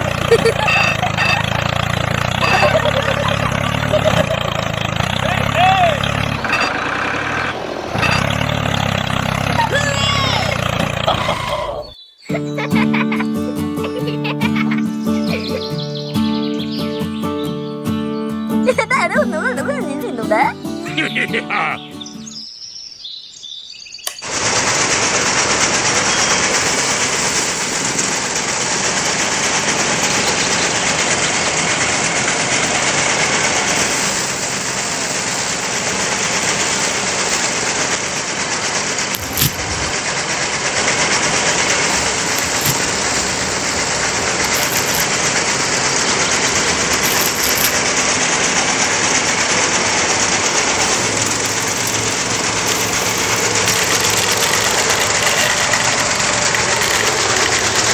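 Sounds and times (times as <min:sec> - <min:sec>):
thresher motor rattling whir: 0:00.0 - 0:12.0, 0:24.1 - 0:57.9.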